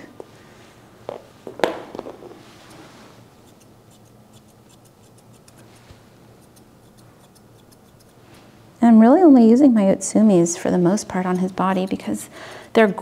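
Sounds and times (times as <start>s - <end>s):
grooming shears snipping: 3.4s - 8.5s, 11.1s - 12.1s.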